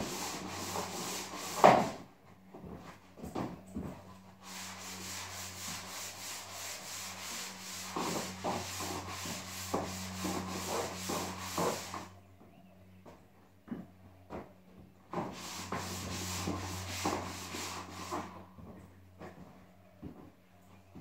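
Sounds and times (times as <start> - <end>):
hand sanding drywall: 0.0 - 2.1, 3.9 - 12.2, 15.1 - 19.4.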